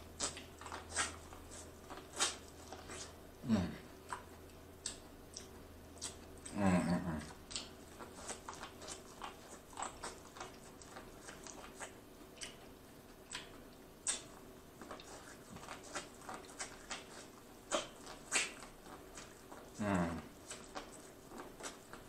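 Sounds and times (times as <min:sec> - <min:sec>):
biting and chewing corn: 0:00.0 - 0:03.2, 0:03.9 - 0:22.0
wet mouth smacks: 0:13.3 - 0:14.3, 0:17.7 - 0:18.7.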